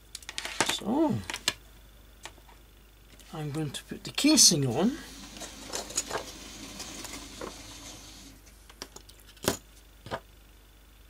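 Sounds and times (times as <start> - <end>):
plastic parts rustling: 5.1 - 9.6.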